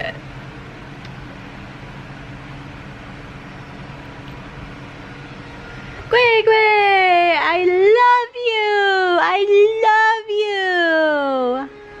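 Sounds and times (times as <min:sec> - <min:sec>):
faint even hum: 0:00.0 - 0:12.0
construction machinery drone: 0:11.2 - 0:12.0.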